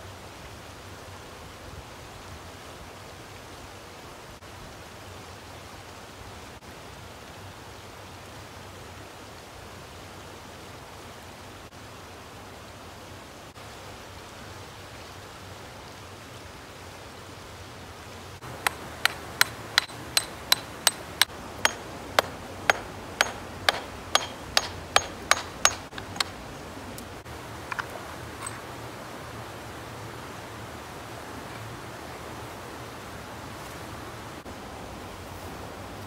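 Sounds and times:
water rushing: 11.6s - 35.9s.

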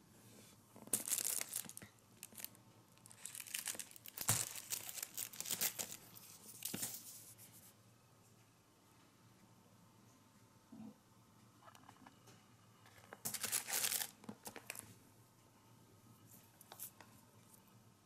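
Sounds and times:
plastic wrap crinkling: 0.8s - 7.0s, 13.2s - 14.9s.

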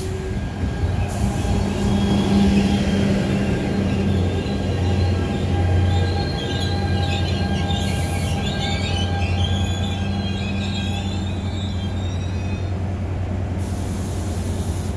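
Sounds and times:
locomotive engine drone: 0.0s - 14.9s
high-pitched wheel squeals: 0.8s - 12.8s.

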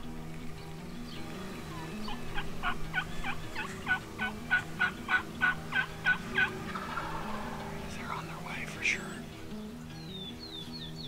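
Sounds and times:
turkey yelps: 2.3s - 7.6s.

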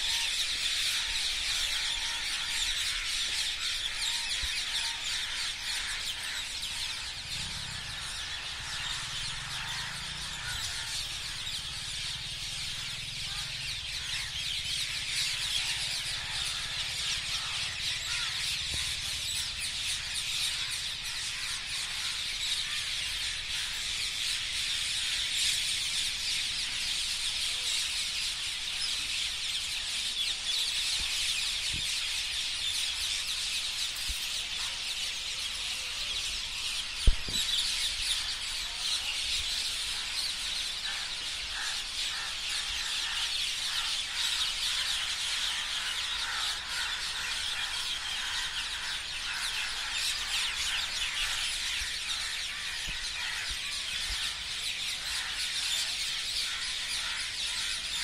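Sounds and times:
chorus of birds chattering: 0.0s - 58.0s.

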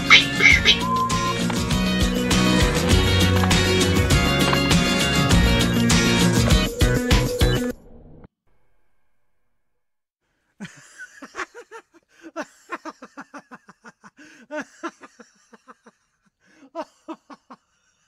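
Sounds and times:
person laughing: 10.6s - 17.6s.

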